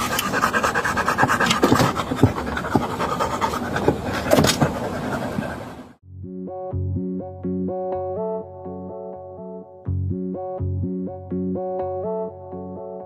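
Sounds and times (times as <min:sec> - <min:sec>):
dog panting: 0:00.0 - 0:05.9.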